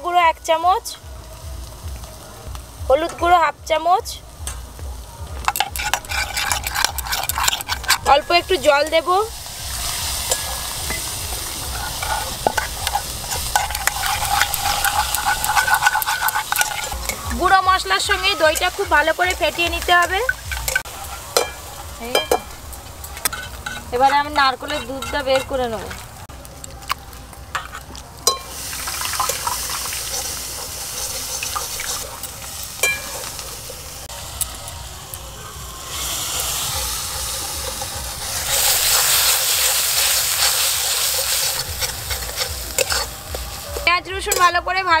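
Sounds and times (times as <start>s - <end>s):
onion frying in oil: 0.0s - 45.0s
spoon scraping metal bowl: 5.4s - 8.4s, 9.8s - 26.2s, 27.6s - 33.5s, 36.5s - 43.2s.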